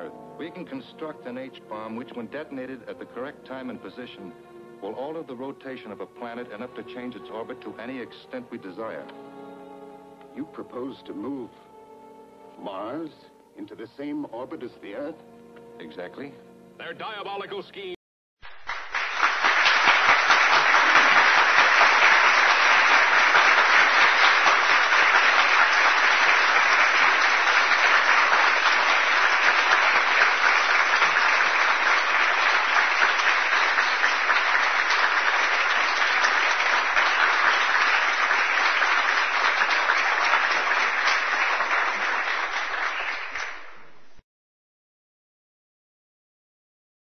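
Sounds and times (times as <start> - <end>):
applause: 18.4 - 44.2.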